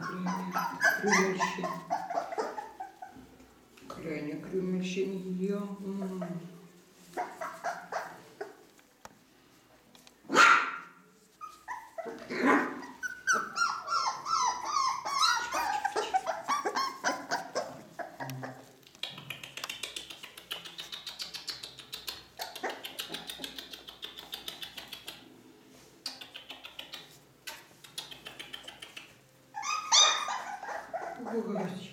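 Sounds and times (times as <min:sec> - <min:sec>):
puppies whining: 0:00.0 - 0:03.3, 0:07.1 - 0:08.7, 0:11.3 - 0:18.8, 0:29.5 - 0:31.9
puppies yipping: 0:00.0 - 0:03.3, 0:07.1 - 0:08.7, 0:11.3 - 0:18.8, 0:28.2 - 0:31.8.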